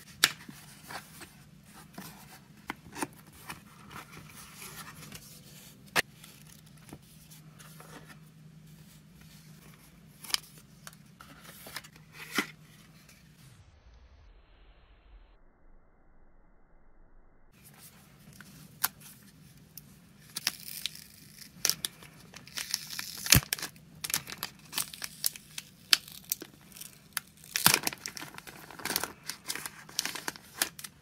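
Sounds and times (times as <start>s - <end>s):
packaging rustling: 20.3s - 31.0s.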